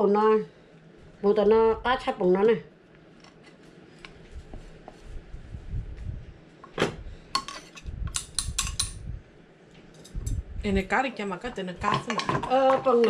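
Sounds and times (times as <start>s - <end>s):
dishes and utensils clinking: 7.4s - 9.0s, 11.8s - 13.0s.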